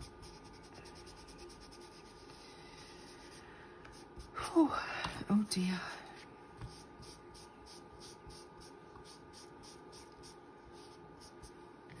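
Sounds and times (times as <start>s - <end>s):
soft strokes on paper: 6.2s - 11.6s.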